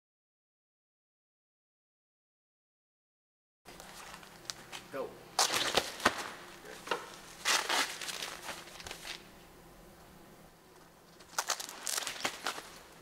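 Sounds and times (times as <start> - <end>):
nylon straps rustling: 3.7 - 9.2, 11.1 - 13.0.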